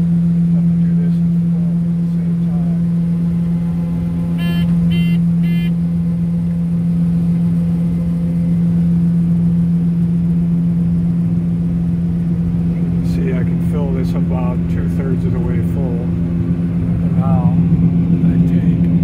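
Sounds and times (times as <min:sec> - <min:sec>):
short electronic warning beeps: 0:04.4 - 0:05.8.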